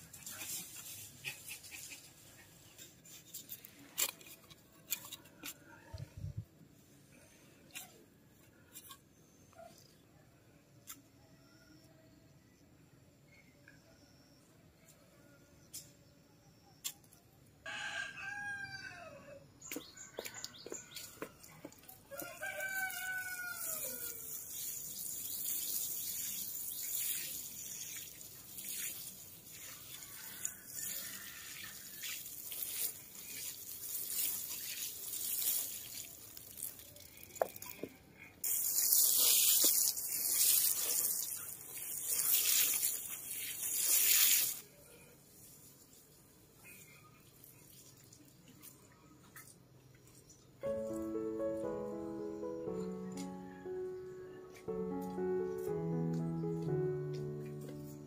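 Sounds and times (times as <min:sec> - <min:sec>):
rooster crowing: 0:17.6 - 0:19.4, 0:22.1 - 0:24.3
water sprinkling from watering can: 0:20.2 - 0:44.7, 0:47.3 - 0:48.8.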